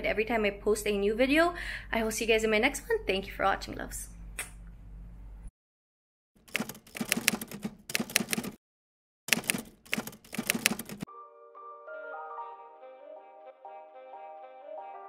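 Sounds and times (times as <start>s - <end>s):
typewriter keys clacking: 6.5s - 8.6s, 9.3s - 11.1s.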